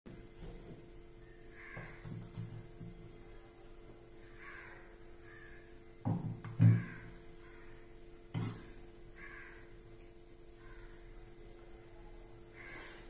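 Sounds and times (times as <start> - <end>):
faint steady hum: 0.1 - 13.0
crows cawing: 1.5 - 2.2, 4.2 - 5.8, 6.6 - 8.0, 9.1 - 9.8, 10.5 - 11.2, 12.5 - 13.0.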